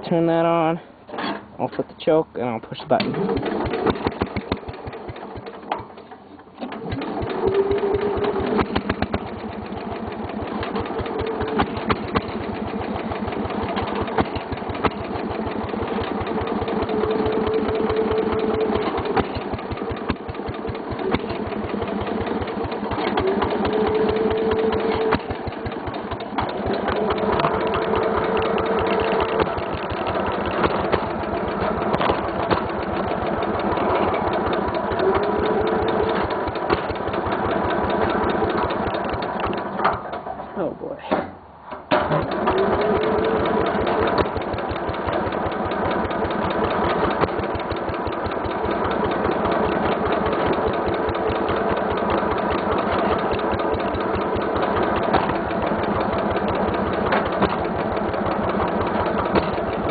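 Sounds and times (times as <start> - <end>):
garden tractor engine running: 0.0 - 59.9
push-button starter cranking engine: 2.8 - 40.5, 41.1 - 59.9.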